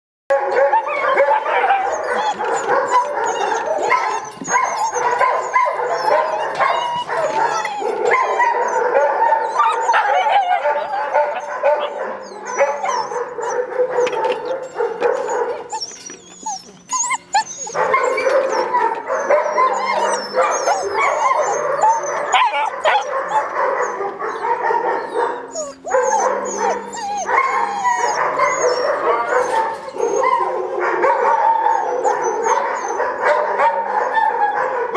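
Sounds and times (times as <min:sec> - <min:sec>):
puppies barking and whining: 0:00.3 - 0:34.9.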